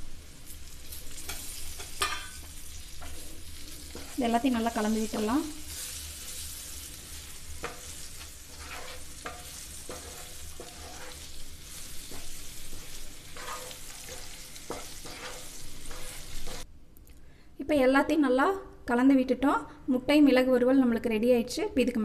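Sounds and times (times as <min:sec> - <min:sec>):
oil sizzling in a frying pan: 0:00.0 - 0:16.7
spatula scraping a pan: 0:01.1 - 0:16.7.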